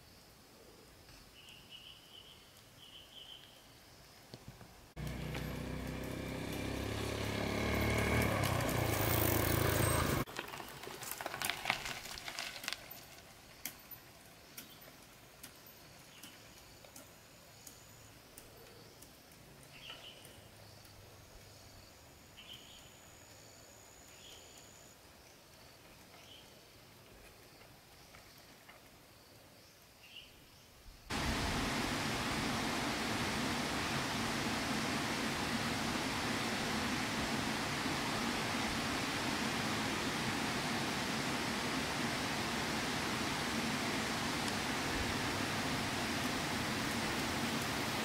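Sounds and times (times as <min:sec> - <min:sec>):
motorbike engine running: 0:05.0 - 0:10.2
faint bird chirps: 0:15.6 - 0:25.4.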